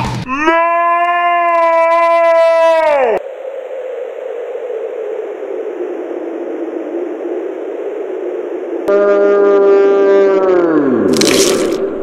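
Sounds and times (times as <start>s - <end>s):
slowed-down yell: 0.2s - 3.2s
low hazy drone: 2.7s - 12.0s
held note with overtones: 8.9s - 10.6s.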